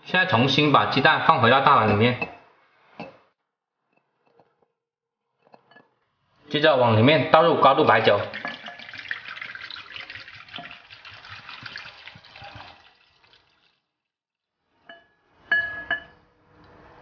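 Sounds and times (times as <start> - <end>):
liquid pouring into bowl: 7.8 - 14.0.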